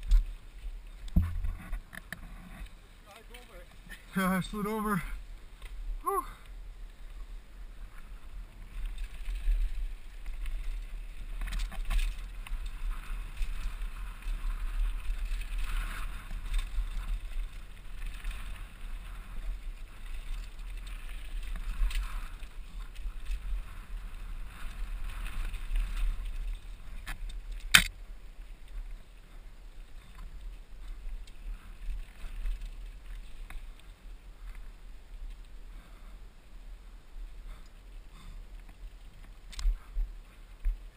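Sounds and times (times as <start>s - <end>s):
bike tyres on dirt trail: 0.0s - 40.9s
wind rumbling on microphone: 0.0s - 40.9s
small rattles and clicks: 8.6s - 27.9s.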